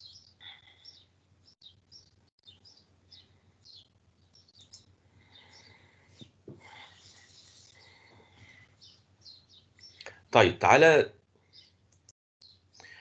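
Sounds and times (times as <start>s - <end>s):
small birds chirping: 0.0s - 10.8s, 11.4s - 13.0s.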